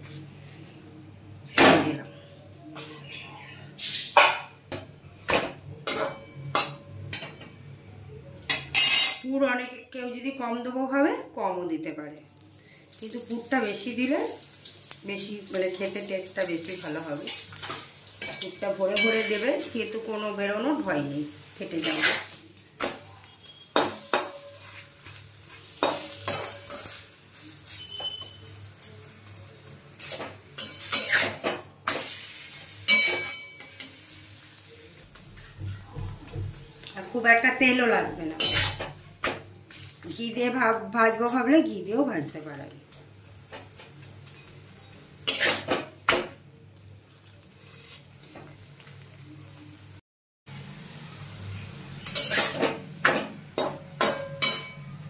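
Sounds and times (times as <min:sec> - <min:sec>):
faint frying sizzle: 0:08.0 - 0:55.0
metal spatula scraping a pan: 0:17.3 - 0:19.7, 0:21.7 - 0:28.6, 0:30.0 - 0:34.1, 0:38.2 - 0:39.0, 0:45.2 - 0:45.8, 0:52.0 - 0:52.9
metal spatula scraping pan: 0:21.8 - 0:22.4, 0:30.0 - 0:34.0, 0:38.2 - 0:39.0, 0:45.2 - 0:45.8, 0:52.0 - 0:52.8.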